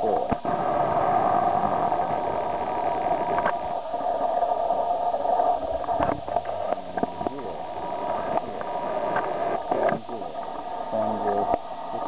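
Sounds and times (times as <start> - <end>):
machine drone with thin tone: 0.0 - 12.0
faint clicks: 3.2 - 3.6.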